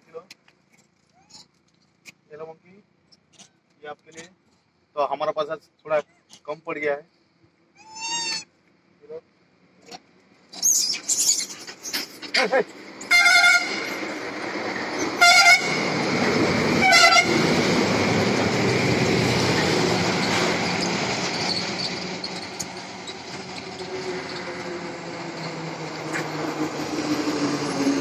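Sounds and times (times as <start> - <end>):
heavy trucks driving past: 11.4 - 28.0
engine approaching: 12.4 - 28.0
truck horn blasts: 13.1 - 13.9, 15.2 - 15.9, 16.8 - 17.4.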